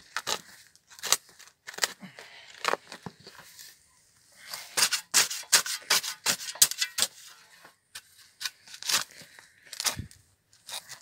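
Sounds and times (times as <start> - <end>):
spade digging into soil: 4.5 - 11.0.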